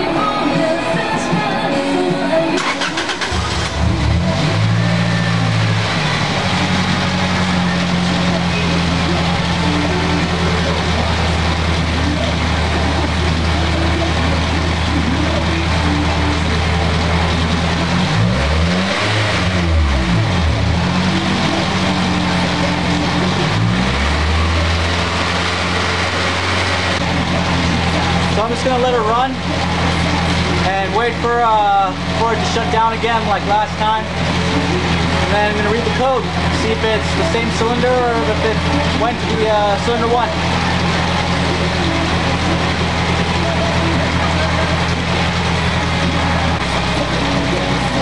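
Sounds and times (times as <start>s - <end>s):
car engine revving and idling: 0.0s - 48.0s
starter cranking engine: 2.5s - 48.0s.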